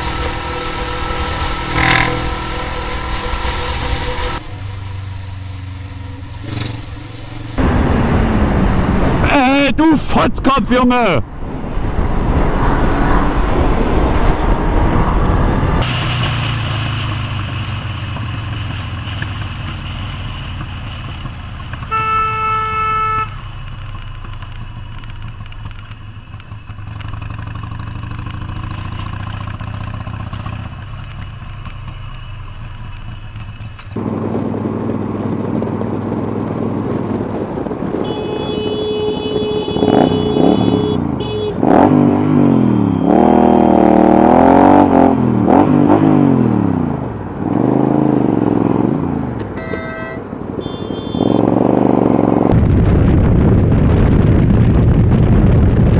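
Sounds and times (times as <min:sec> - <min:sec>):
vehicle horn honking: 0:00.0 - 0:04.4, 0:21.8 - 0:23.4, 0:37.9 - 0:43.4, 0:49.5 - 0:51.6
loud sounds rising and falling in pitch: 0:00.0 - 0:05.2
motorcycle engine: 0:00.0 - 0:09.3, 0:11.3 - 0:55.8
wind noise: 0:11.2 - 0:15.8, 0:51.3 - 0:55.9.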